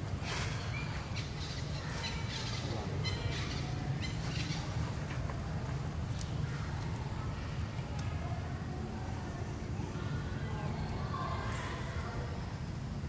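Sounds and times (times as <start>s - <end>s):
birds chirping in high trills: 0.5s - 5.0s.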